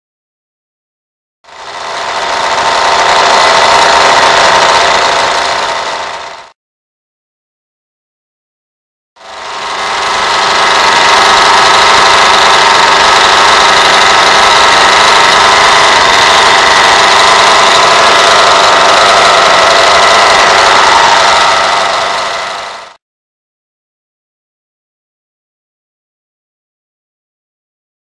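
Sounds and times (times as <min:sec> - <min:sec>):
model diesel engine buzzing: 0:01.5 - 0:06.5, 0:09.2 - 0:23.0.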